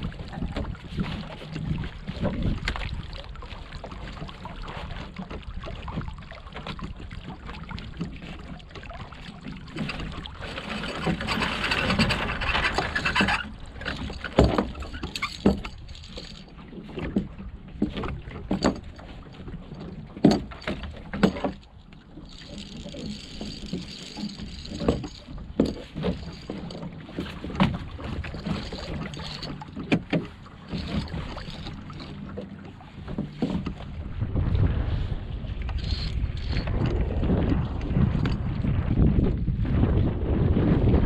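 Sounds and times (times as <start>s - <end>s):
boat hull knocks and rattles: 0.0s - 41.0s
wind and water hiss: 18.0s - 40.4s.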